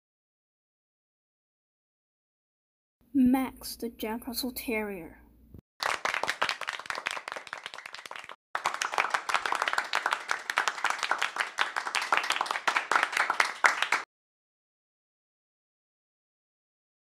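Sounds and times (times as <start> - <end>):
applause: 5.8 - 14.1.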